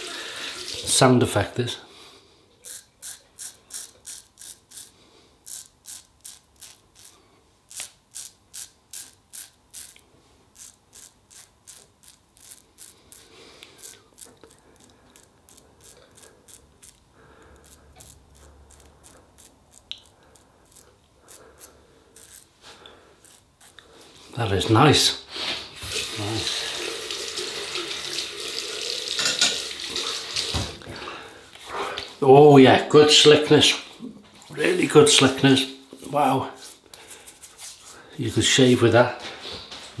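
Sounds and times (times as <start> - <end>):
razor scraping stubble: 2.6 - 25.0.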